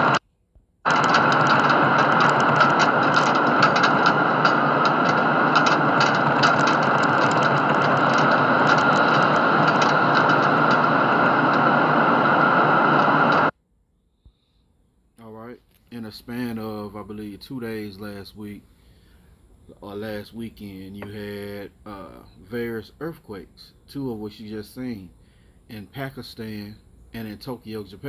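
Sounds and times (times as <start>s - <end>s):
rattling clicks: 0.9s - 12.1s
building rumbling in earthquake: 0.9s - 13.4s.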